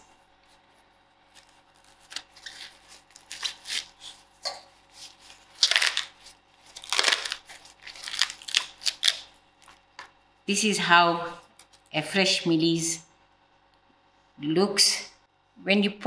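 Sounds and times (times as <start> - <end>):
corn husks ripping: 1.3 - 9.7.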